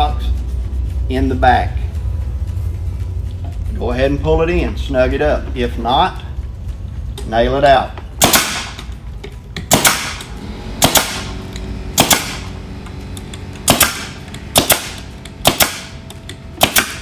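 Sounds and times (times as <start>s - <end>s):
pneumatic stapler firing into wood: 8.2s - 8.8s, 9.6s - 12.6s, 13.2s - 17.0s.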